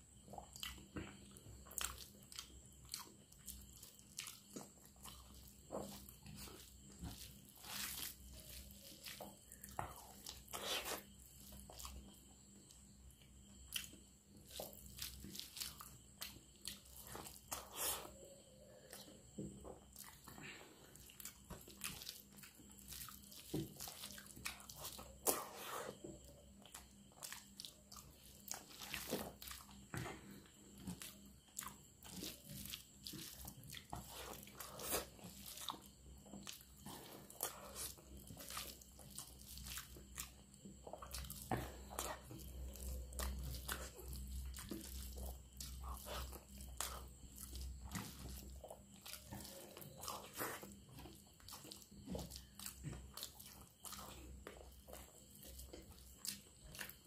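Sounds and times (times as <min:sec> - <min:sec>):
rice mixed by hand on plate: 0:03.8 - 0:12.2, 0:32.0 - 0:54.2.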